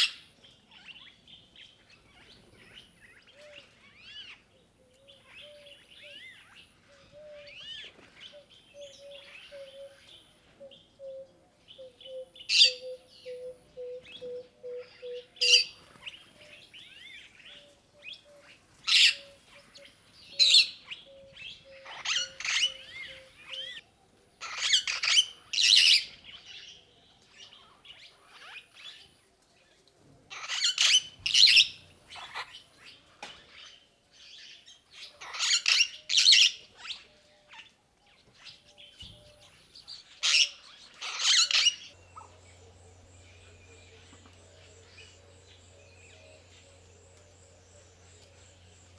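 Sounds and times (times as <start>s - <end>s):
loud harsh bird calls: 40.2s - 47.6s.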